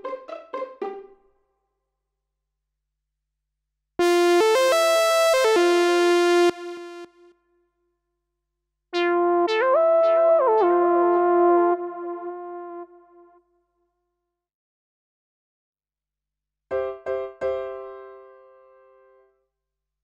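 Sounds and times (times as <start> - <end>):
synth lead notes: 4.0 - 7.3, 9.0 - 13.4.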